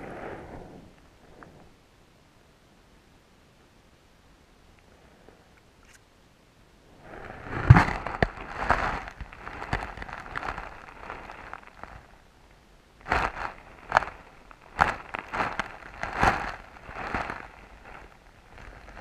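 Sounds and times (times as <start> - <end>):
muffled underwater hiss: 0.0 - 2.2.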